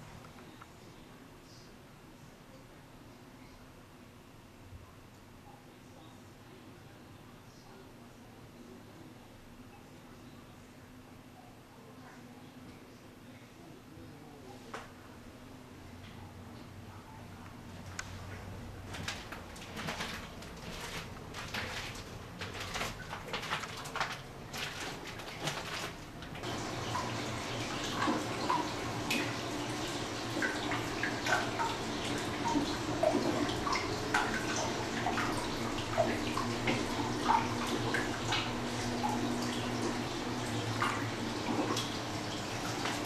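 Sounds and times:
water trickling into tub: 18.9 - 43.0.

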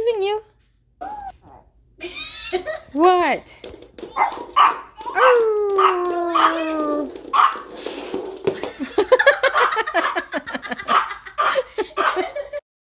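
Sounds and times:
person giggling: 2.0 - 2.9, 8.6 - 12.6.

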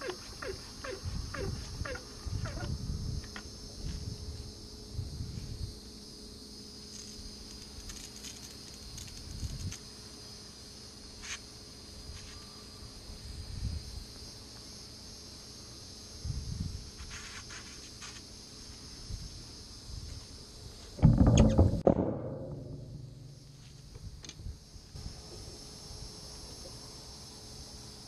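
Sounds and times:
high-pitched insect drone: 0.0 - 21.7, 22.5 - 28.0
low rumbles: 21.0 - 24.7.

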